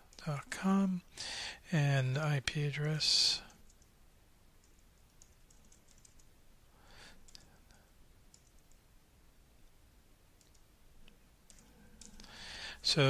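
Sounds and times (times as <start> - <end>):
faint keyboard typing: 3.4 - 4.0, 4.6 - 6.4, 7.2 - 8.9, 10.4 - 12.4.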